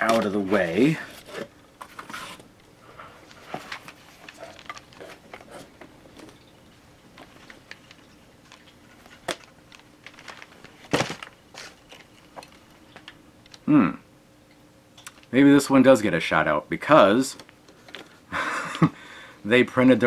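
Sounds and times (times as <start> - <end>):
paper and cardboard rustling: 0.0 - 6.4, 7.2 - 12.6.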